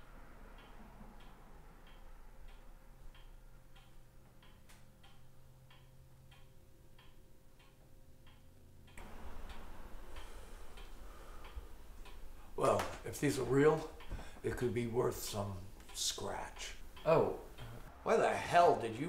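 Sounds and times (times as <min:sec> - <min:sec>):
background hiss: 0:00.0 - 0:19.0
wall clock ticking: 0:00.0 - 0:19.0.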